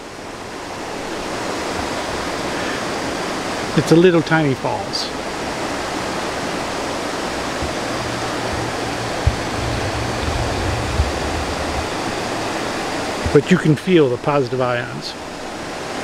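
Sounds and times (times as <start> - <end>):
low rumble: 7.3 - 13.5
faint knocks: 7.6 - 12.7.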